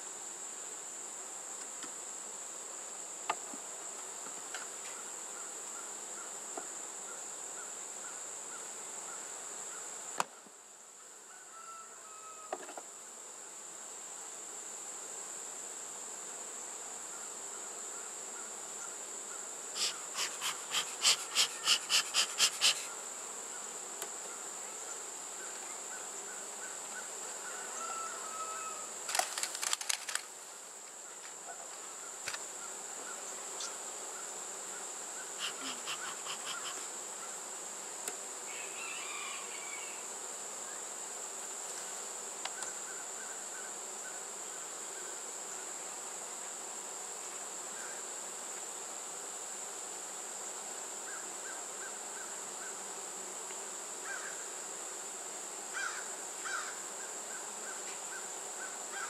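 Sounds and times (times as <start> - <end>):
high-pitched insect chorus: 16.5 - 59.0.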